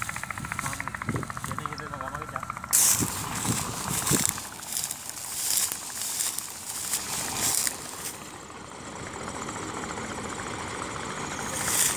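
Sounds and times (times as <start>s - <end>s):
combine harvester engine running: 0.0s - 11.9s
dry rustling: 2.7s - 8.4s, 11.4s - 11.9s.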